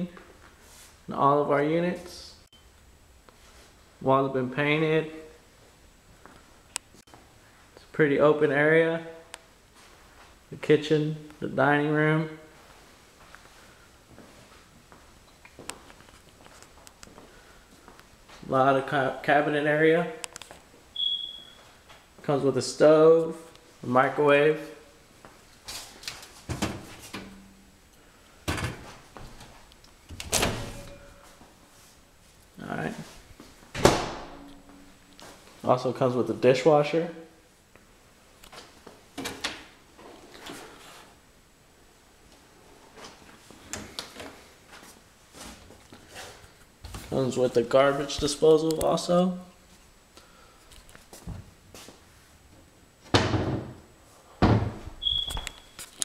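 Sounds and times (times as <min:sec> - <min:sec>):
cabinet doors banging shut: 0:33.8 - 0:34.4, 0:53.1 - 0:53.8, 0:54.4 - 0:54.8.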